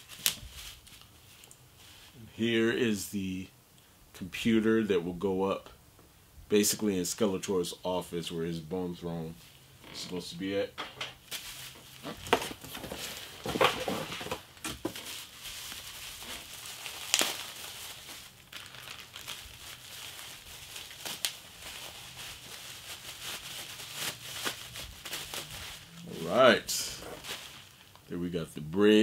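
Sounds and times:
plastic packaging crinkling: 0:11.3 - 0:28.1.

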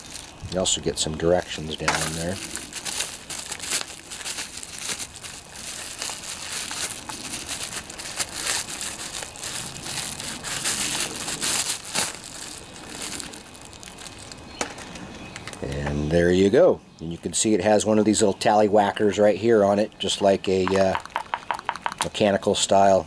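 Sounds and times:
bubble wrap crinkling and crackling: 0:00.0 - 0:15.7.

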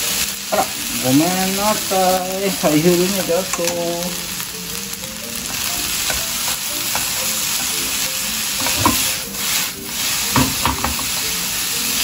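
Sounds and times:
vegetables sizzling in hot oil: 0:00.0 - 0:12.0
pan and vegetables knocking: 0:00.4 - 0:00.9, 0:05.4 - 0:12.0.

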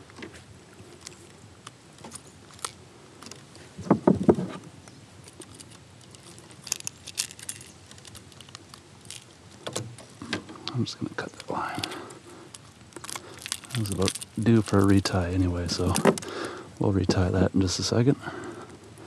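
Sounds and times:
loud thumps: 0:03.8 - 0:04.6.

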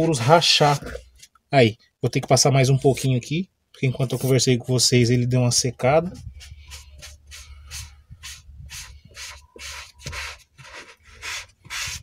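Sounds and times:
foam pad rubbing on leather: 0:06.3 - 0:12.0.

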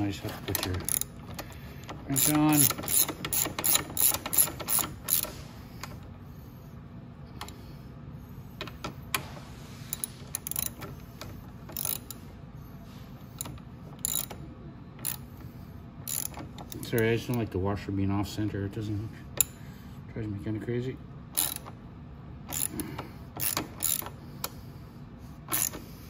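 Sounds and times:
ratchet wrench clicking: 0:00.0 - 0:06.0, 0:09.9 - 0:12.3, 0:13.3 - 0:14.4, 0:15.0 - 0:17.4, 0:19.4 - 0:19.6, 0:21.3 - 0:21.8, 0:22.5 - 0:24.6, 0:25.5 - 0:25.9.

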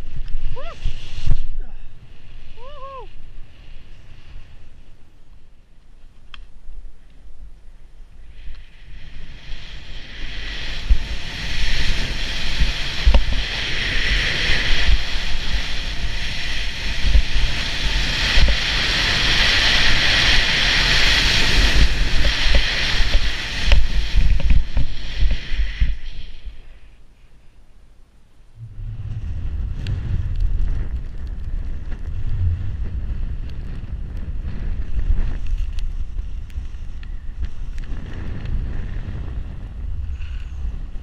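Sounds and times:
skis hissing through snow: 0:00.0 - 0:05.0, 0:08.2 - 0:27.0
wind buffeting microphone: 0:08.7 - 0:26.6, 0:28.6 - 0:41.0.

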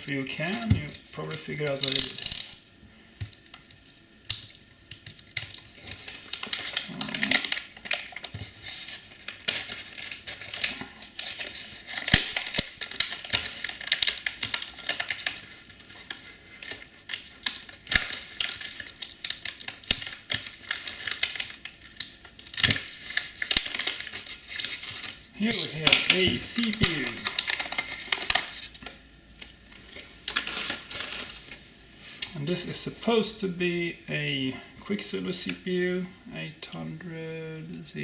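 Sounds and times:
plastic bag crinkling: 0:03.4 - 0:32.4.

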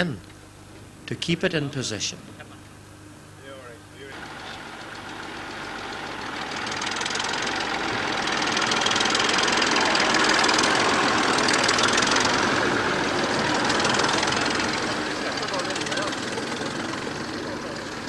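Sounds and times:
tractor engine under load: 0:04.1 - 0:18.0.

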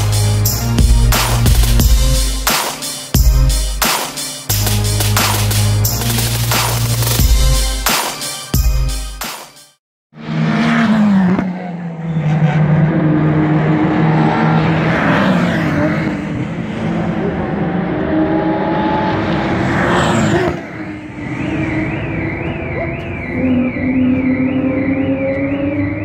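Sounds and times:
cars rushing past: 0:10.2 - 0:26.0
race car engines running: 0:10.2 - 0:26.0.

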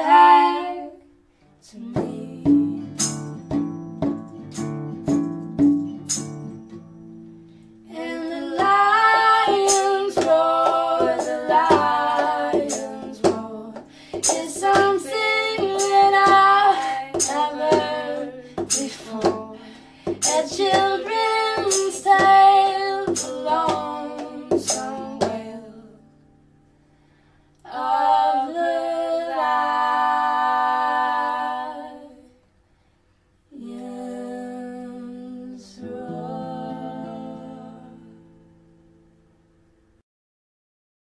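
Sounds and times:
woman singing over rhythmic music: 0:01.7 - 0:03.2, 0:07.9 - 0:25.9.

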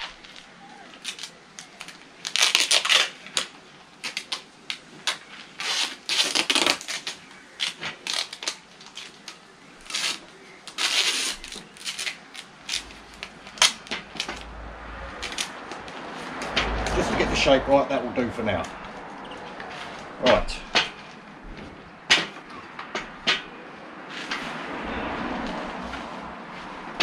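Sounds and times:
duct tape pulled off roll: 0:00.0 - 0:14.5, 0:15.2 - 0:17.0.

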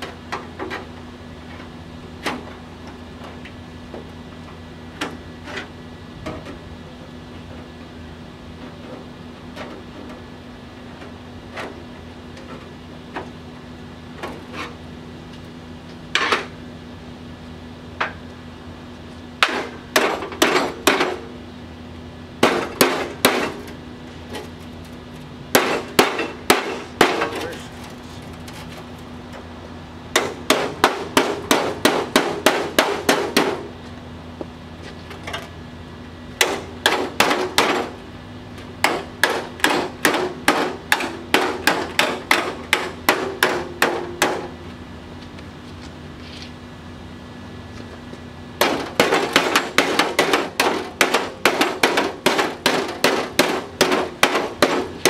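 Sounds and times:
steady low hum: 0:00.0 - 0:55.0
hammer striking steel: 0:19.4 - 0:21.2, 0:22.4 - 0:23.6, 0:25.5 - 0:27.5, 0:30.1 - 0:33.7, 0:36.4 - 0:38.0, 0:38.8 - 0:44.6, 0:48.6 - 0:55.0.

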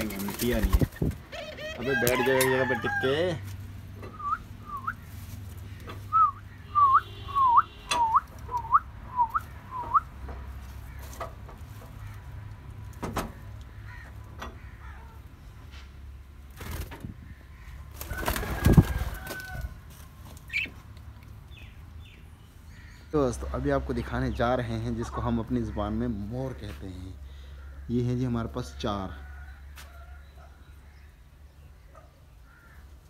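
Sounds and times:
birds whistling: 0:04.0 - 0:05.1, 0:05.7 - 0:10.2.

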